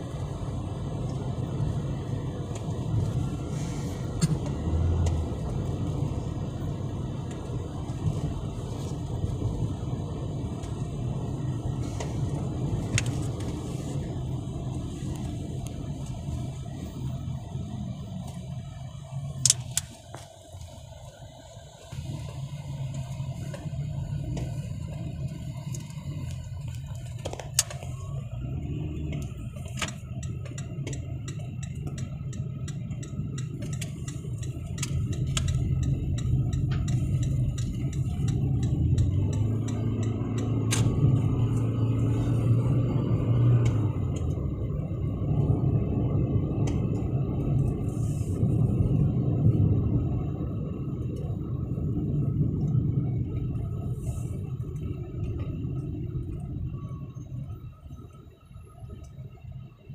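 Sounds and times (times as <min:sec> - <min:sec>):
car engine and road noise: 0:00.0 - 0:59.9
faint light ticks: 0:29.1 - 0:40.6.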